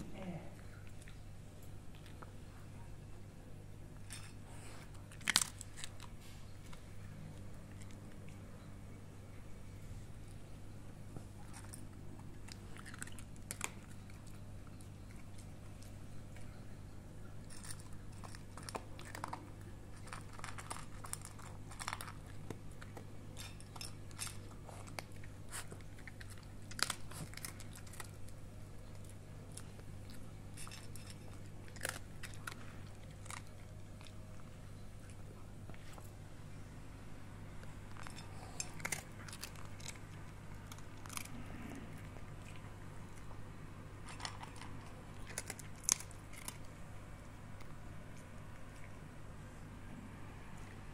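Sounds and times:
steady low hum: 0:00.0 - 0:50.9
dog crunching dry kibble: 0:03.9 - 0:08.7, 0:11.1 - 0:36.2, 0:37.5 - 0:49.2.

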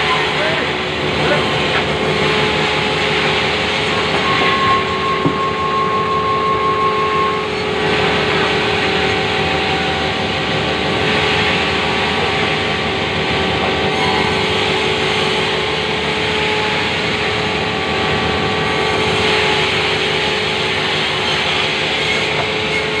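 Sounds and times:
band saw cutting timber: 0:00.0 - 0:23.0
thin whine: 0:02.4 - 0:10.2.

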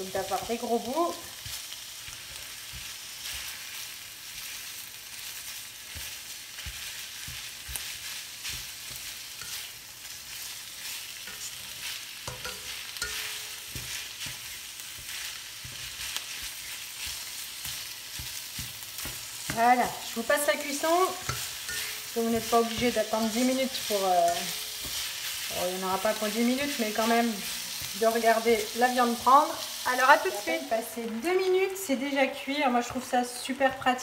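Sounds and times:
meat sizzling in a wok: 0:00.0 - 0:34.0
spatula knocking and scraping pan: 0:05.9 - 0:09.8, 0:11.1 - 0:29.4.

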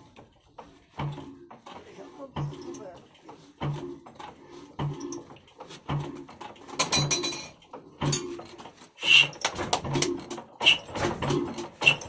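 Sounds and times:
diesel engine chuffing while cranked: 0:00.0 - 0:06.8, 0:07.6 - 0:12.0.

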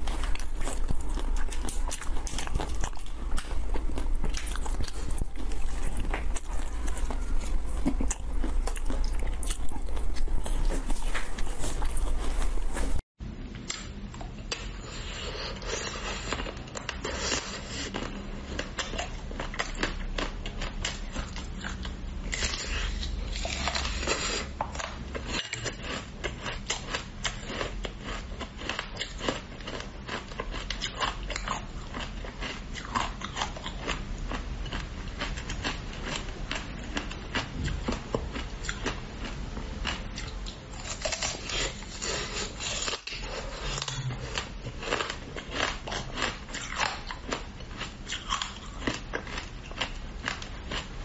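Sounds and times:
biting frozen chocolate: 0:00.0 - 0:13.0.

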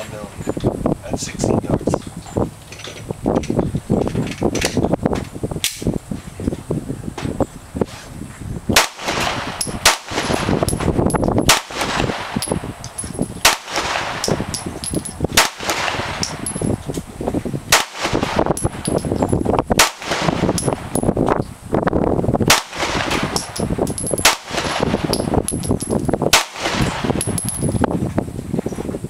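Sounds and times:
pistol shots: 0:08.8 - 0:10.9, 0:11.5 - 0:12.6, 0:13.4 - 0:14.6, 0:15.3 - 0:16.6, 0:17.7 - 0:19.0, 0:19.8 - 0:21.0, 0:22.5 - 0:25.2, 0:26.3 - 0:27.3.

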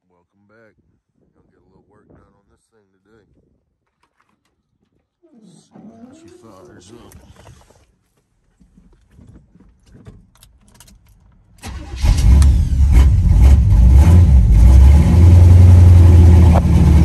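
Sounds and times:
pickup truck engine starting: 0:11.6 - 0:17.0.

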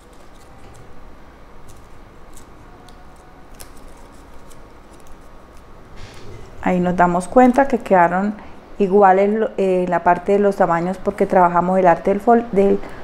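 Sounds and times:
paper clicks and rustles: 0:00.0 - 0:00.9, 0:01.6 - 0:05.7
low steady hum: 0:00.0 - 0:13.0.

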